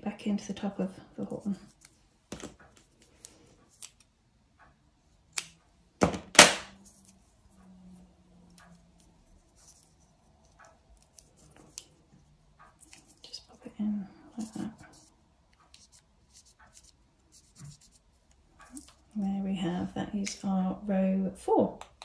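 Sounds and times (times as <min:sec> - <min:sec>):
yarn handling: 0:08.5 - 0:13.6.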